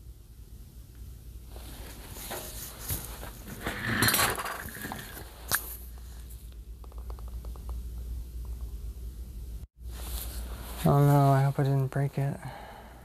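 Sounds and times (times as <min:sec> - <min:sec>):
rustling handling noise: 0:01.5 - 0:06.5, 0:09.8 - 0:11.9.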